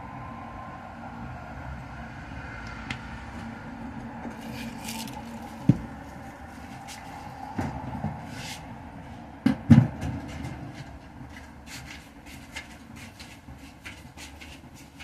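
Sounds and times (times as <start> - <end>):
knocks and thumps: 5.6 - 6.0, 9.4 - 10.9.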